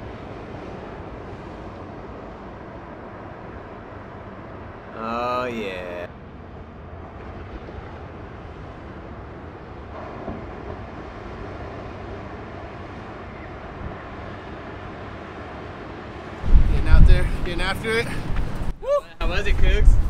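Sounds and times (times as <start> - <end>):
ocean surf rushing: 0.0 - 6.6, 7.2 - 20.0
person shouting: 5.0 - 6.1, 18.8 - 19.2
wind buffeting microphone: 6.4 - 20.0.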